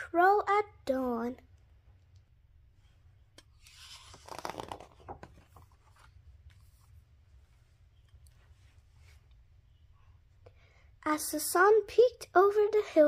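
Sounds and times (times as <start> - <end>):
book page rustling: 3.4 - 7.1.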